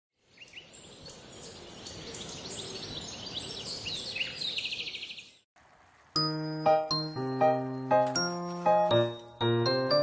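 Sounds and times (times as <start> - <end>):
small birds chirping: 0.2 - 5.5
bird trill: 0.3 - 5.4.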